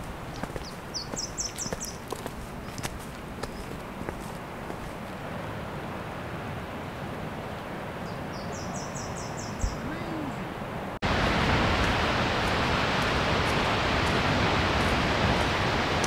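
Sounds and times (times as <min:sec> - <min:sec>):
bird chirping: 0:00.3 - 0:02.0, 0:08.0 - 0:10.0
waterfall roaring: 0:09.6 - 0:16.0.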